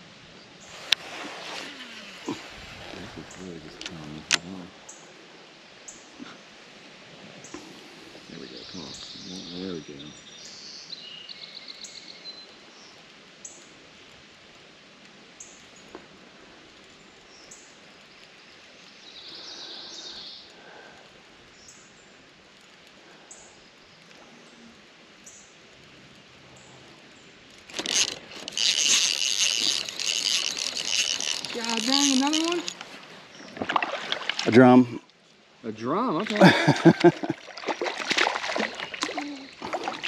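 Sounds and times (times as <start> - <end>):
birds chirping: 1.6 - 6.6, 7.4 - 13.6, 16.9 - 22.1, 26.4 - 35.0, 35.7 - 40.0
fishing reel rapid clicking: 27.7 - 32.9.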